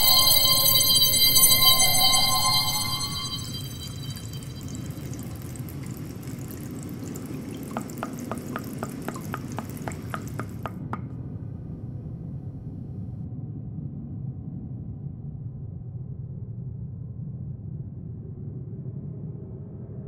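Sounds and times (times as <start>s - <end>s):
evenly spaced ticks: 0.0s - 10.8s
tap water running into sink: 3.1s - 10.8s.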